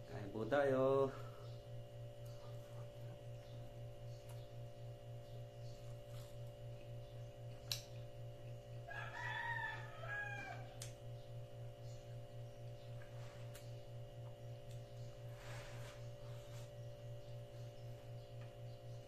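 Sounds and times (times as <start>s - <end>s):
low hum: 0.0s - 19.0s
rooster crowing: 8.8s - 10.8s.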